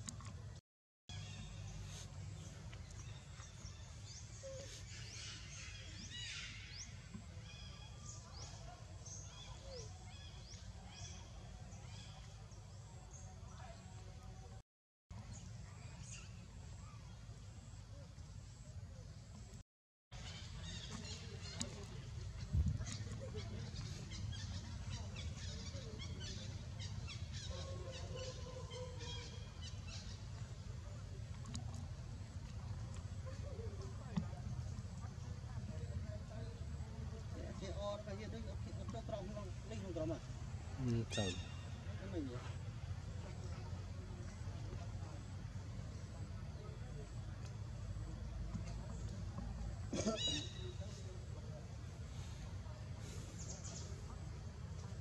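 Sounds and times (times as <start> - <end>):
birds chirping: 20.1 - 34.2, 35.3 - 42.5.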